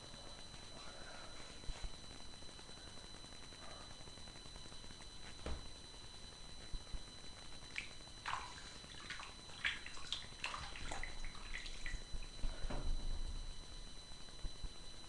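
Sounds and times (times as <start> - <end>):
water splashing in a sink: 7.7 - 12.4.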